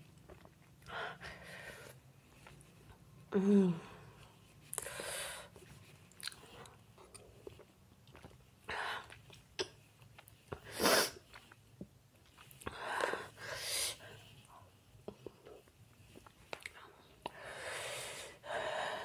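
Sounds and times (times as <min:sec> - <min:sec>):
chewing: 0:06.0 - 0:10.6, 0:11.2 - 0:12.7.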